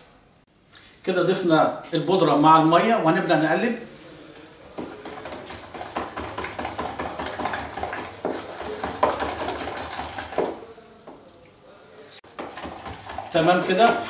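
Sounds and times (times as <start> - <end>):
spatula scraping plastic bucket: 4.7 - 10.7, 12.3 - 14.0.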